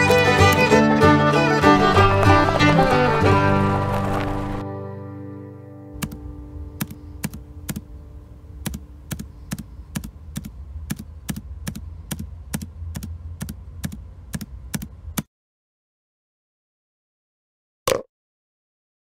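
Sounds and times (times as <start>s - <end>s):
low rumble: 1.5s - 4.6s
clicky footsteps: 1.6s - 4.6s.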